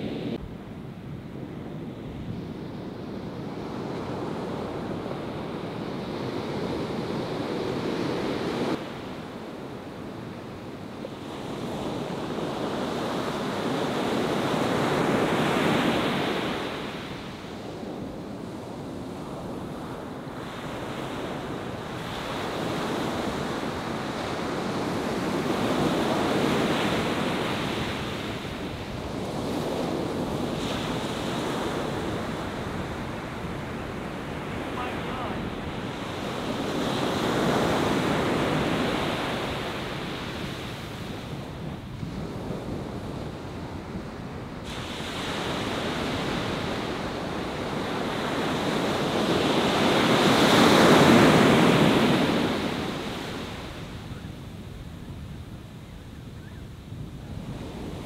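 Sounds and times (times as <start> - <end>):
wind on microphone: 0.0 - 58.0
ocean surf breaking: 20.0 - 41.4, 43.3 - 53.9.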